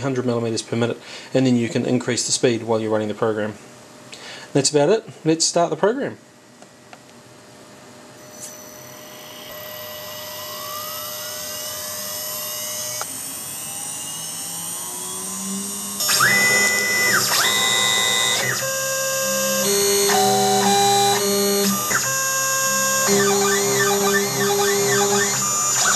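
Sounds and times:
spindle whine rising in pitch: 8.1s - 25.9s.

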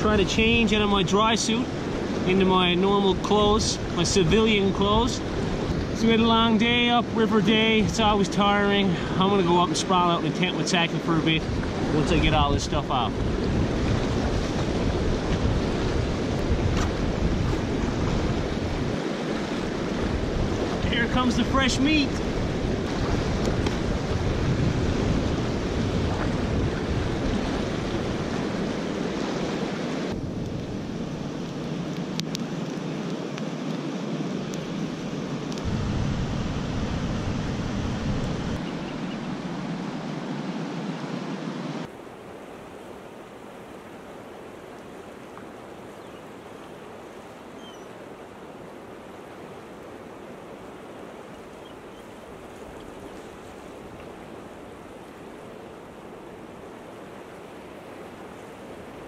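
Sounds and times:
campfire crackling: 21.8s - 39.5s.

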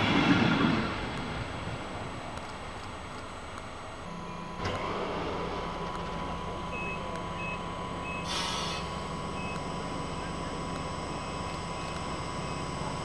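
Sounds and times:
brief hiss: 8.2s - 9.0s.

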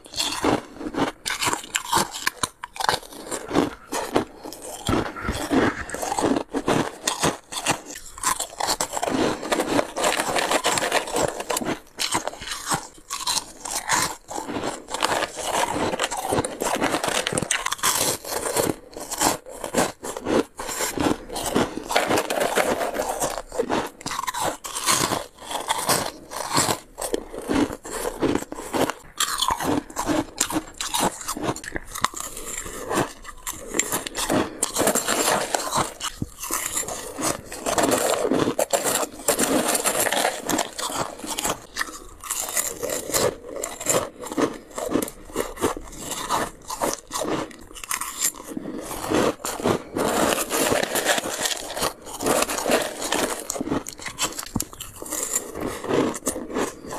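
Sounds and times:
frost being crunched and chewed: 0.0s - 56.9s.

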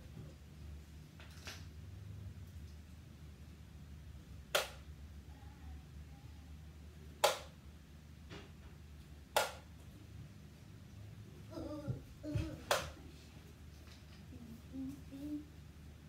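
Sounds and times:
darts landing with sharp knocks: 4.5s - 4.8s, 7.2s - 7.6s, 9.4s - 9.7s.

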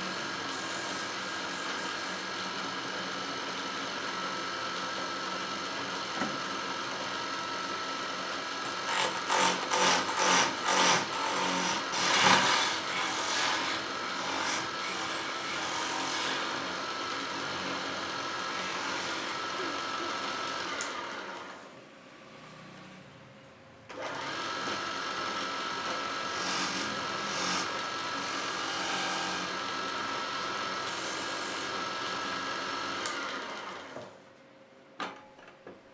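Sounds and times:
wood lathe running: 8.2s - 21.5s, 23.9s - 34.0s
chisel cutting spinning wood: 8.7s - 21.4s, 24.2s - 34.0s.

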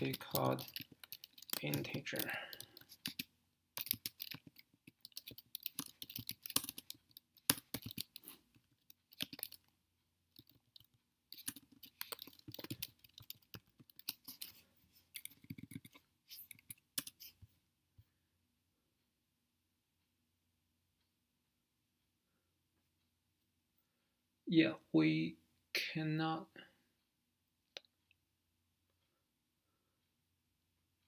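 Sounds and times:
keyboard typing: 0.0s - 17.4s.

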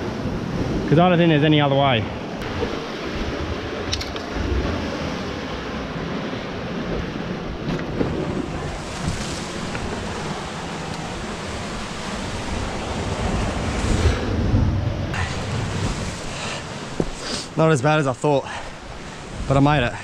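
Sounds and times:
ocean surf washing: 0.0s - 20.0s
wind rumbling on microphone: 0.0s - 20.0s.

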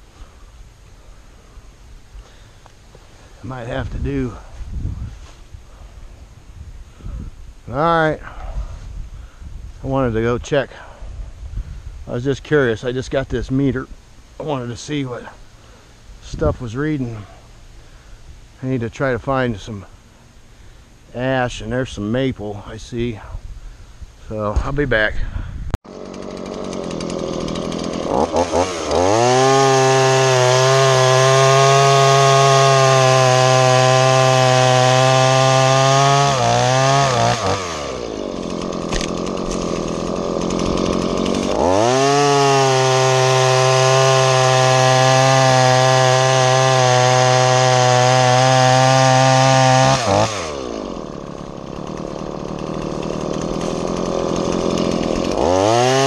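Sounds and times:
chainsaw cutting log: 25.8s - 56.0s.

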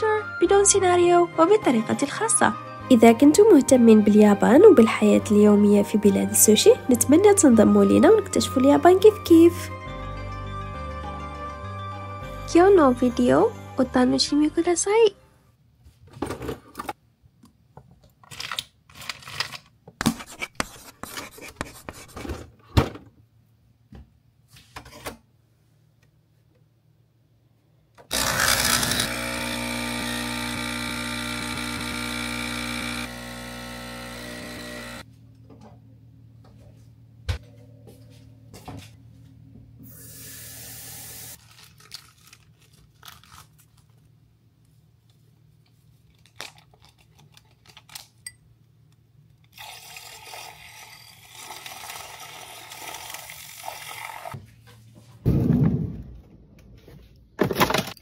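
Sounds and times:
small electric motor whirring: 28.1s - 35.0s.

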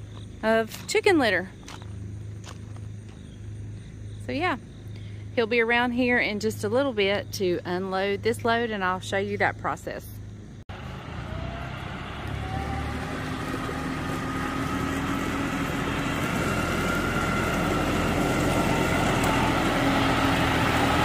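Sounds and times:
tractor diesel engine: 10.7s - 21.0s.

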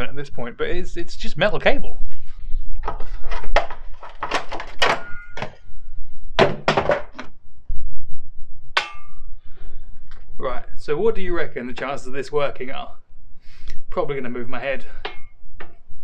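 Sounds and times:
metal parts knocking and clunking: 2.8s - 5.6s.

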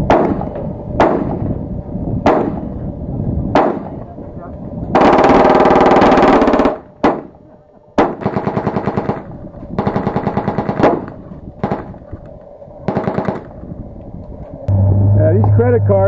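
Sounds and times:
machine-gun fire bursts: 5.0s - 7.3s, 8.0s - 11.9s, 12.9s - 13.5s.

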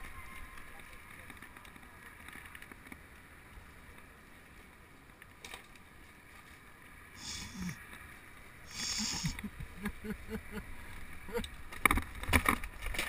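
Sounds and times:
bike tyres rolling on dirt: 0.0s - 9.9s, 10.5s - 13.0s
tyres hissing through puddles: 6.6s - 11.5s.

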